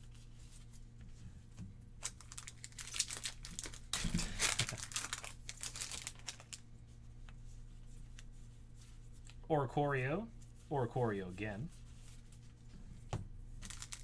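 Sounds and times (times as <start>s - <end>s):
cards rustling: 2.0s - 6.6s, 13.6s - 14.0s
foil wrapper crinkling and tearing: 2.0s - 6.6s, 13.6s - 14.0s.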